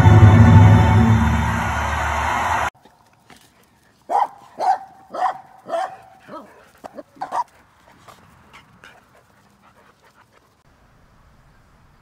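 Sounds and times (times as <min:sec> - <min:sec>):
dog barking: 0:04.1 - 0:07.5.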